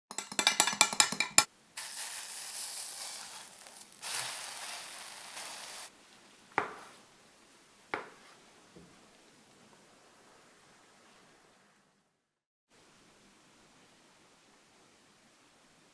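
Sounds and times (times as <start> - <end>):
sharp clattering taps: 0.1 - 1.5
egg sizzling in a frying pan: 1.8 - 5.9
knife knocking on cutting board: 6.6 - 6.9, 8.0 - 8.2.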